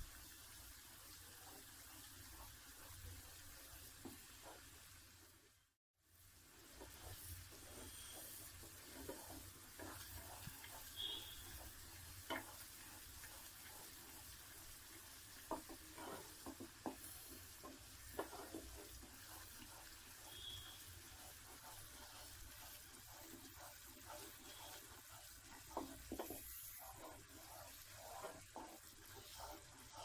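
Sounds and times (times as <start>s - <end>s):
syrup bubbling in pot: 0.0s - 30.0s
spatula scraping metal pot: 6.7s - 30.0s.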